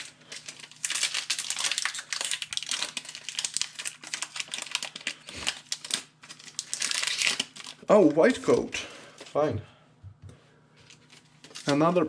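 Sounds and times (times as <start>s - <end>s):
foil wrapper crinkling: 0.0s - 8.3s, 10.8s - 12.0s.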